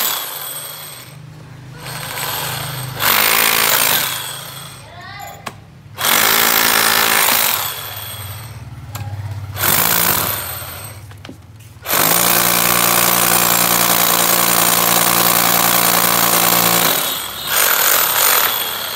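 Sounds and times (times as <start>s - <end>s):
hammer drill boring into stone: 0.0s - 1.2s, 1.8s - 4.8s, 6.0s - 8.6s, 9.6s - 11.0s, 11.9s - 18.9s.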